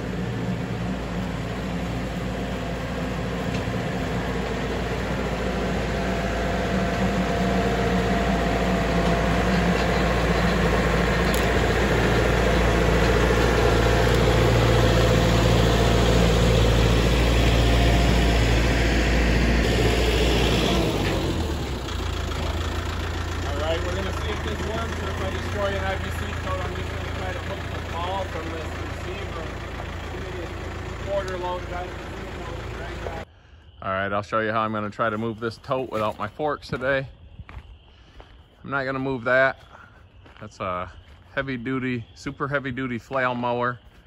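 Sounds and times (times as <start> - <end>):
tractor diesel engine running: 0.0 - 33.3.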